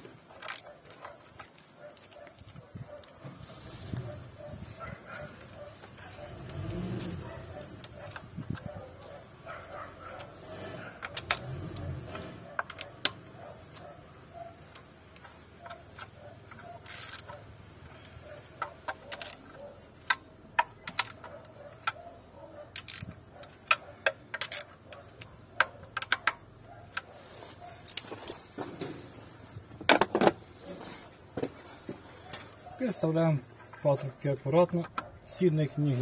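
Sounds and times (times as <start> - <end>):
socket wrench clicking: 10.1 - 14.0, 14.7 - 22.1, 22.7 - 27.1.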